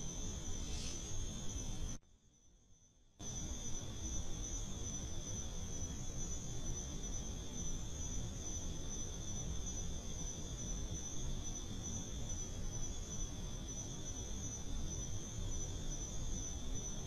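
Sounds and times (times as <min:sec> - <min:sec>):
night insects chirring: 0:00.0 - 0:17.0.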